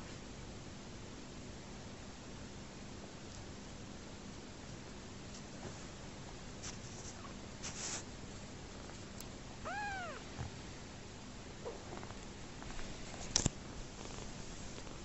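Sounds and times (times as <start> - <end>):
kitten meowing: 9.6 - 10.3.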